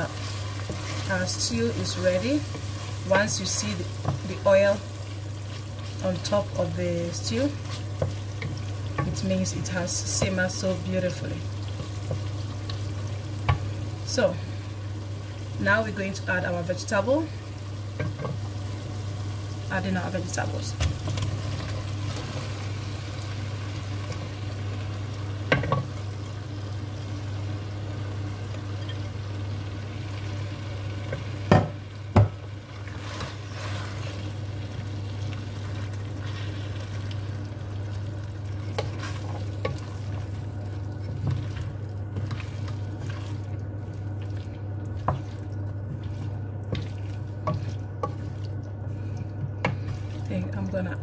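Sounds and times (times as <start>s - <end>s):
wooden spoon stirring and scraping: 0.0s - 14.3s, 32.8s - 34.4s, 35.3s - 37.3s, 37.9s - 51.0s
steady low hum: 0.0s - 51.0s.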